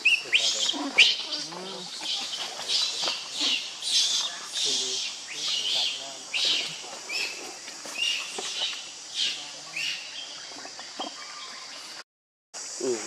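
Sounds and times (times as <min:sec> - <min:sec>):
monkey squealing: 0:00.0 - 0:07.4.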